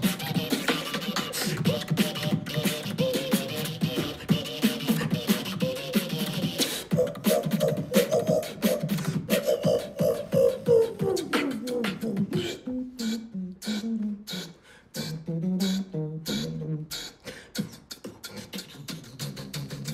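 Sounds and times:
beatboxing mouth percussion: 0.0 - 19.9
hummed melody: 0.0 - 19.9.

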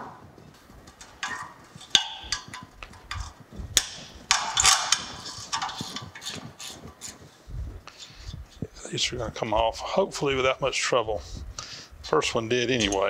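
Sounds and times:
wrenches clicking on bolts: 1.0 - 6.8.

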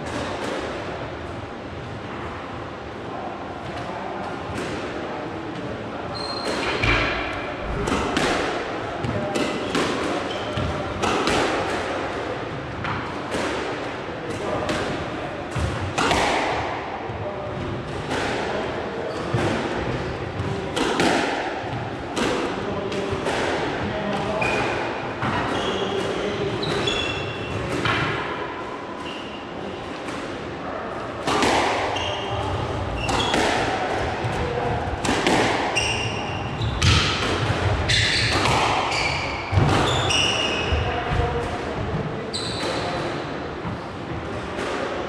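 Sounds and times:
shoes squeaking on court floor: 6.1 - 6.9, 26.6 - 27.6, 31.9 - 33.4, 35.8 - 37.0, 37.9 - 40.8, 42.3 - 42.9.

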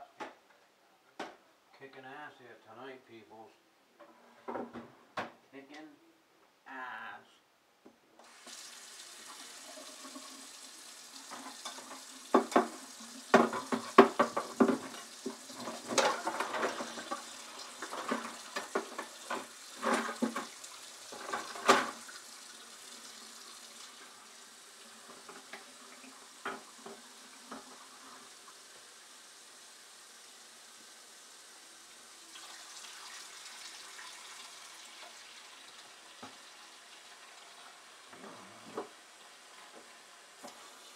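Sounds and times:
faucet running into sink: 8.2 - 40.9
dishes clattering in sink: 11.2 - 22.2, 26.3 - 27.8.

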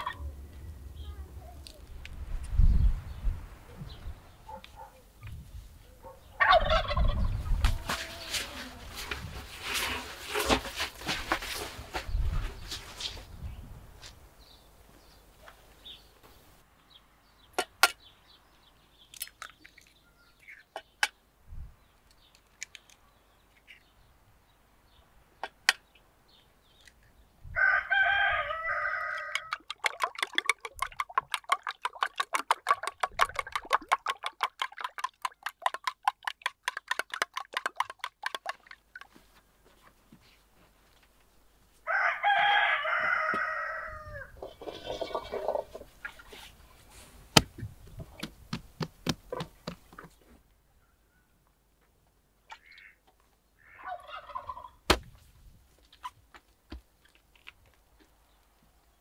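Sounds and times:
rooster crowing: 27.6 - 29.5, 41.9 - 44.3
spoon beating egg in steel pot: 29.3 - 39.2.

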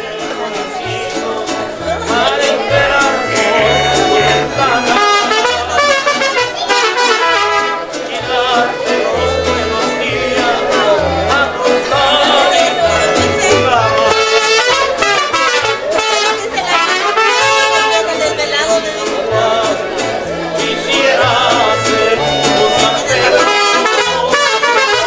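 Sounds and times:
latin music with trumpets: 0.0 - 25.0
low bass line: 0.2 - 5.8, 8.2 - 14.6.

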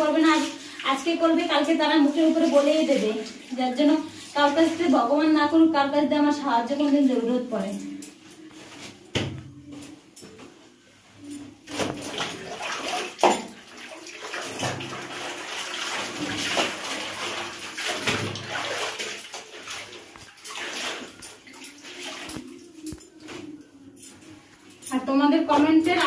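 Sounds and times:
water sloshing in plastic tub: 0.0 - 5.4, 11.7 - 23.5.

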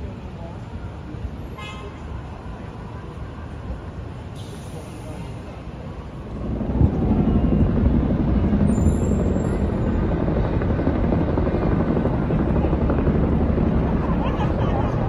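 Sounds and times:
helicopter rotors beating: 6.1 - 15.0.

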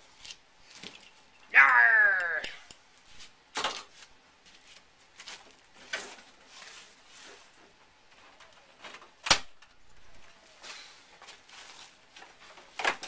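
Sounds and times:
soft rustling scrapes: 3.0 - 7.8, 10.6 - 12.5.

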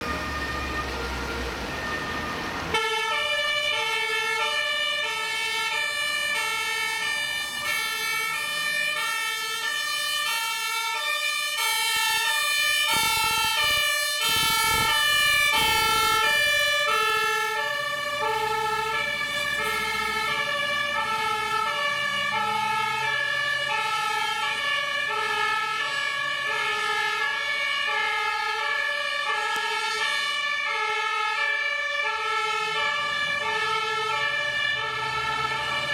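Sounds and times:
truck engine rumbling: 0.0 - 35.9
two-tone fire engine siren: 0.0 - 35.9.

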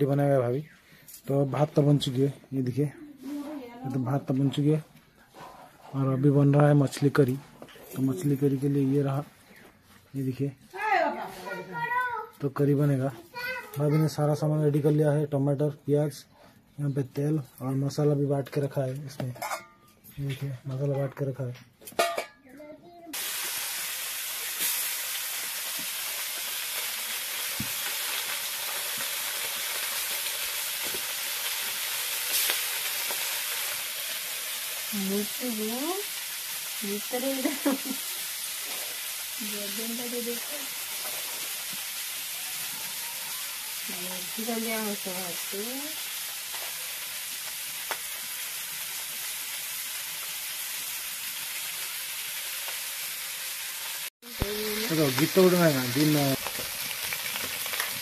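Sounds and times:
fish frying in hot oil: 23.1 - 58.0.

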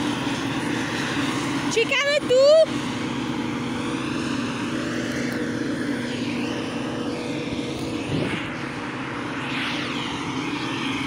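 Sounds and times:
farm machinery engine running: 0.0 - 11.0
rushing noise sweeping in pitch: 5.5 - 11.0.

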